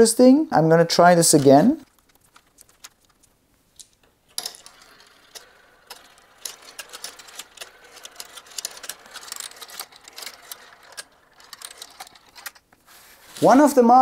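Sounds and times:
marbles rattling down a marble run: 4.3s - 12.6s.

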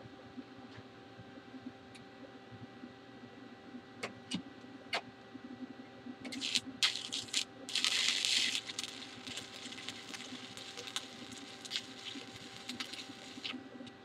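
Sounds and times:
welding arc crackling: 6.3s - 13.8s.

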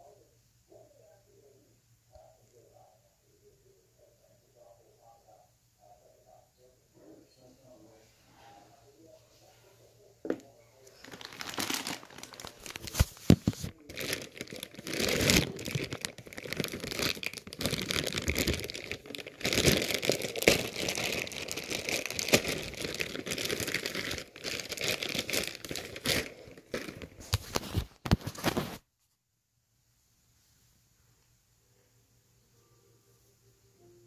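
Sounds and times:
plastic bag crinkling: 10.8s - 28.8s.

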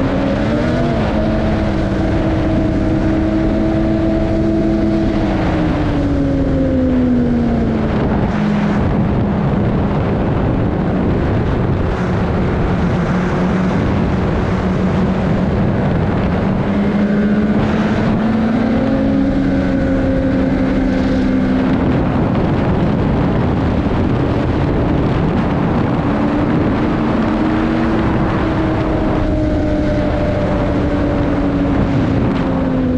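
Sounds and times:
snowmobile engine revving: 0.0s - 32.9s.

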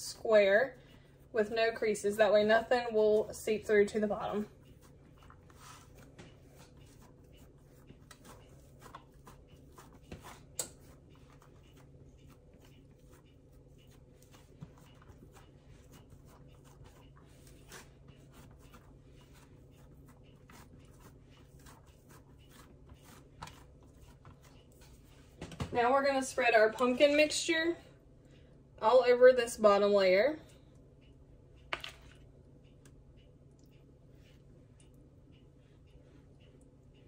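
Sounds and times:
hands patting dough: 0.0s - 26.2s
low steady hum: 0.0s - 37.0s.

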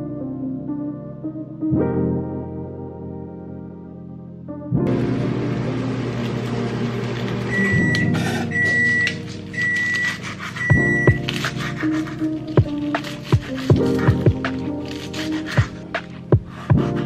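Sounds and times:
microwave oven humming: 4.9s - 11.1s
microwave long beeps: 4.9s - 11.2s
lettuce leaves tearing: 9.0s - 16.3s.

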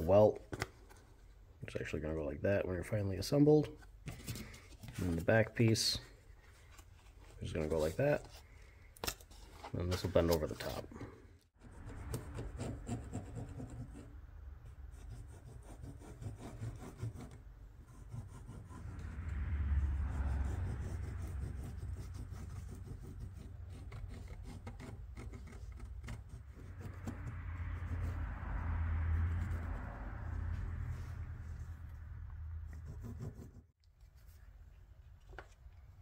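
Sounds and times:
pen tips scratching on leather: 14.9s - 19.2s, 20.2s - 28.2s.

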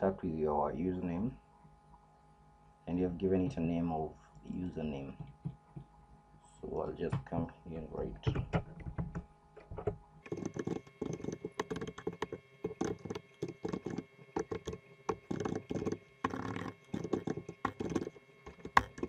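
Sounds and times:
computer keyboard typing: 8.2s - 19.0s.

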